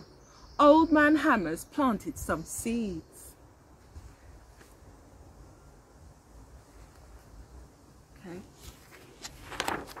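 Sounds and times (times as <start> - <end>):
handling of a book: 8.5 - 10.0
pages clicking: 9.2 - 10.0.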